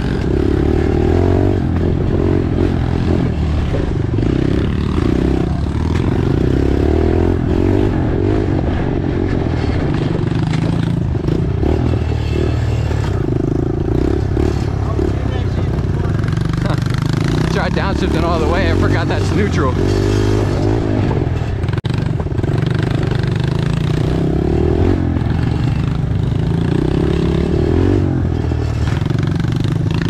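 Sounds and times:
pit bike engine revving: 0:00.0 - 0:30.0.

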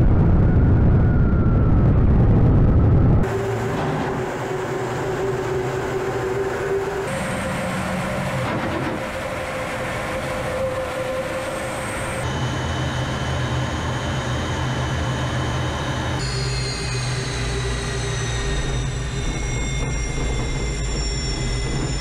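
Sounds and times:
jet engine roar with turbine whine: 0:00.0 - 0:22.0.

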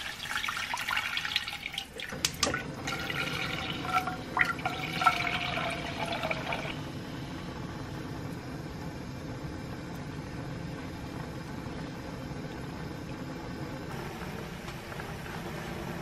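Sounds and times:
water pouring into a pot: 0:00.0 - 0:06.8.

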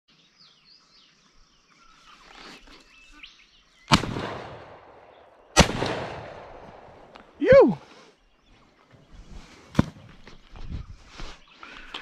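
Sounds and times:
shotgun shots with echo: 0:03.9 - 0:07.1.

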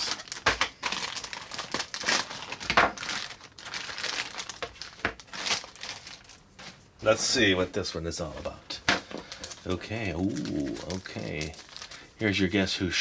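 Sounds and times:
plastic bag crinkling: 0:00.0 - 0:06.6, 0:09.1 - 0:12.5.

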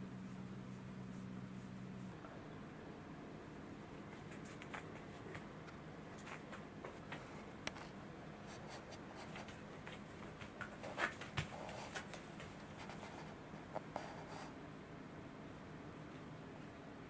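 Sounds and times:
low steady hum: 0:00.0 - 0:17.0
faint scratching and clicks: 0:04.0 - 0:14.6.

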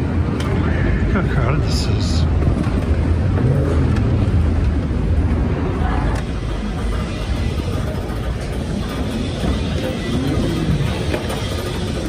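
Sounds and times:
murmur of distant voices: 0:00.0 - 0:12.0
steady low rumble: 0:00.0 - 0:12.0.

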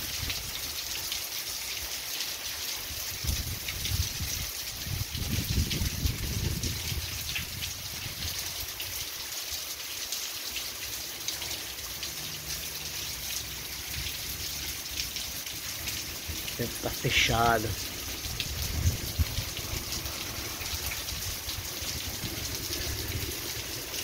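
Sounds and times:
heavy rain on foliage: 0:00.0 - 0:24.0.

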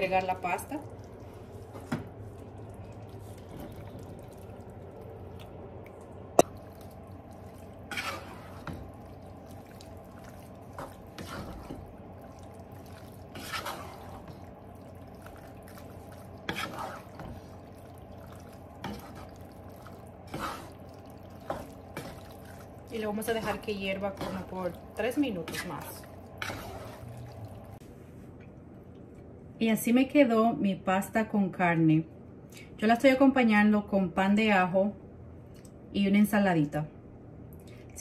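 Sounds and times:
low steady hum: 0:00.0 - 0:38.0
wooden spoon squelching in sauce: 0:00.8 - 0:27.8.

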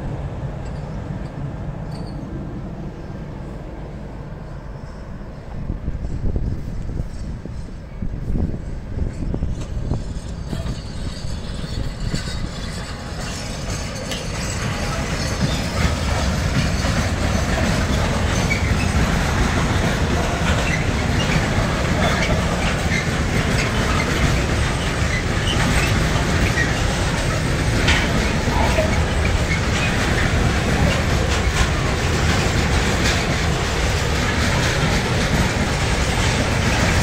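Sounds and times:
train wheels rumbling on rails: 0:00.0 - 0:37.0
wheel clicks and squeaks: 0:01.9 - 0:02.2, 0:09.2 - 0:35.5.

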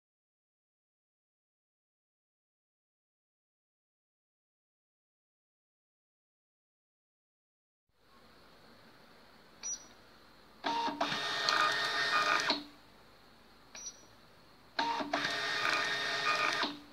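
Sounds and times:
label printer printing: 0:10.6 - 0:12.7, 0:14.8 - 0:16.9.

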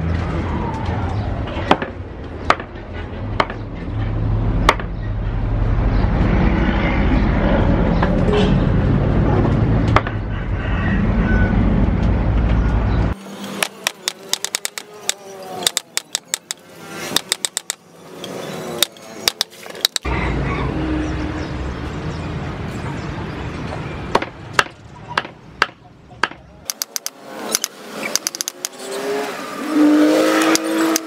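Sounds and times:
cleaver chopping meat on wood: 0:04.6 - 0:04.9, 0:24.1 - 0:27.0.

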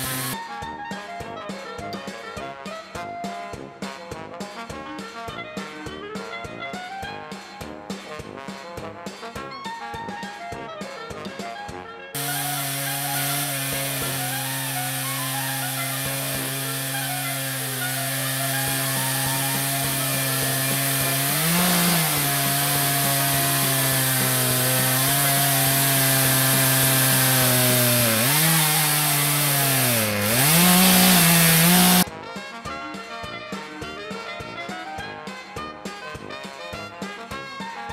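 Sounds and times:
chainsaw cutting log: 0:00.0 - 0:00.4, 0:12.2 - 0:32.0
upbeat music: 0:00.0 - 0:00.4, 0:12.2 - 0:32.5.

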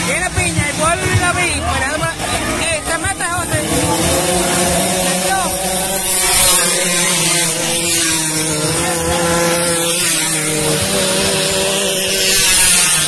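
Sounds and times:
scooter engines buzzing: 0:00.0 - 0:13.0.

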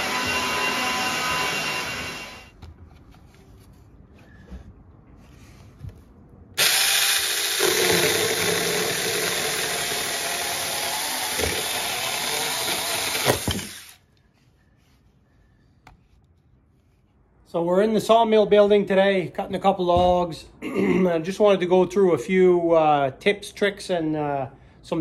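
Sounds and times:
electric chainsaw cutting wood: 0:00.0 - 0:02.5, 0:06.6 - 0:14.0.

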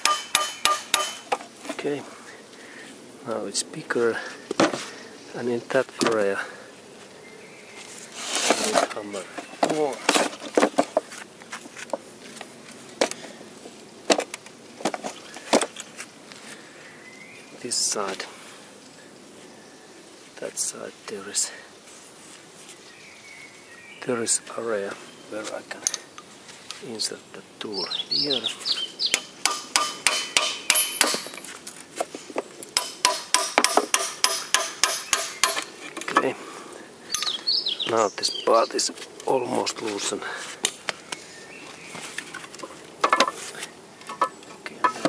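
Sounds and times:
hammer knocking on metal tool: 0:00.0 - 0:01.3, 0:29.4 - 0:31.3.

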